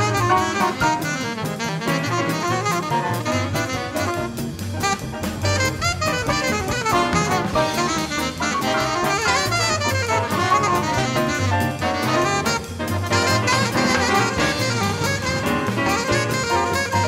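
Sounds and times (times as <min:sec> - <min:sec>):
alto saxophone solo: 0:00.0 - 0:17.0
drum kit cymbals: 0:00.0 - 0:17.0
trombones and brass playing: 0:00.0 - 0:17.0.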